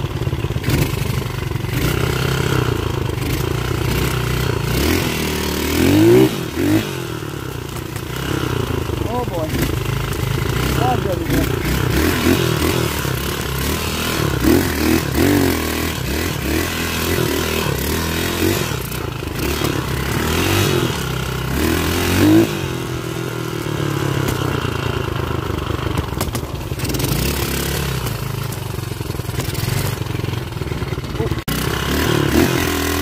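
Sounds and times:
dirt bike engine revving: 0.0s - 33.0s
bike clattering over rough ground: 25.8s - 31.1s.

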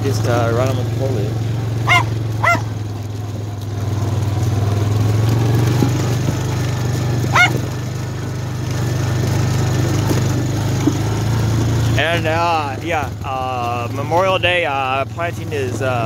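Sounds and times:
atv engine running: 0.0s - 16.0s
dog barking: 1.8s - 2.7s, 7.2s - 7.7s.

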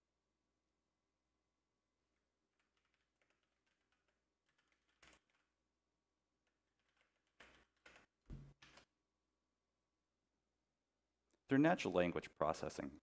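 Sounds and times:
typing on keyboard: 2.1s - 5.6s, 6.4s - 8.9s.

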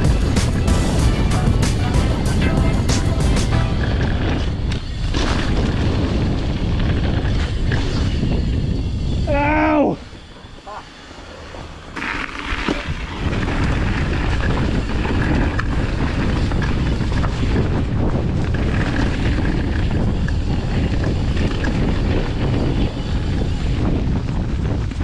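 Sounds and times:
bike rattling over trail: 0.0s - 25.0s
wind buffeting microphone: 0.0s - 25.0s.

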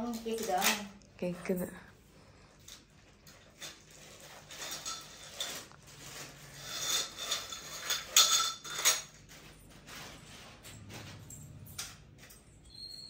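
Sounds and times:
small hard parts clicking: 0.0s - 1.1s.

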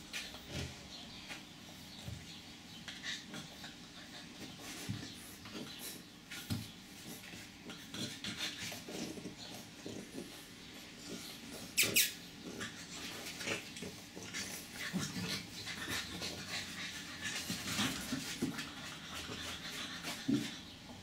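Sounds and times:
puppies scuffling on tile: 0.0s - 21.0s
puppy squeak: 11.8s - 12.2s.

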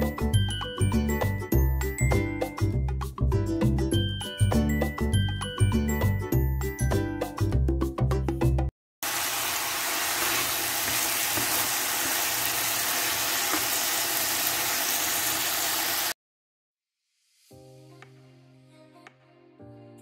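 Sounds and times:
jingle music: 0.0s - 7.7s
chicken frying in hot oil: 9.0s - 16.2s.

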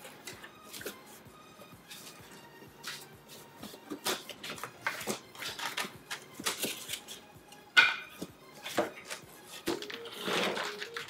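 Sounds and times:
cardboard flaps rustling and scraping: 8.6s - 11.0s.

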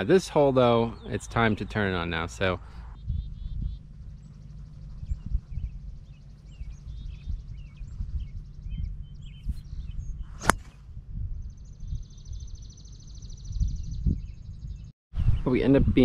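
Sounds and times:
birds chirping: 0.0s - 16.0s
wind rumbling on microphone: 2.9s - 16.0s
golf ball struck off tee: 10.3s - 10.8s.

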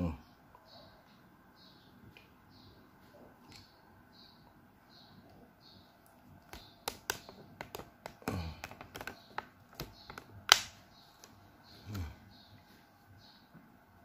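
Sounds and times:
light taps and clicks: 6.4s - 11.4s.

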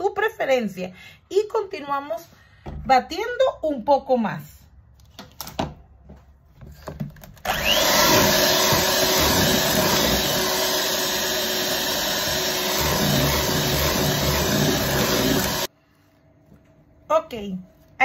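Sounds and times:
electric hand mixer running: 7.4s - 15.7s.

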